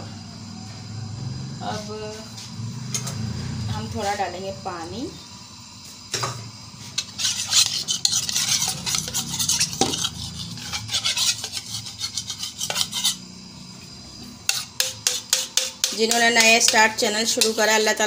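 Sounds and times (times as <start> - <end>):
metal ladle scraping a pot: 6.8 - 13.3, 14.4 - 17.7.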